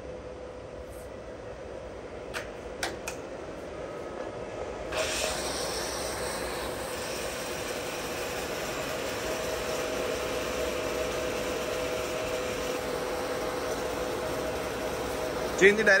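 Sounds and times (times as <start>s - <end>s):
steady mechanical whine: 0.0s - 16.0s
milling machine feed drive hum: 3.3s - 16.0s.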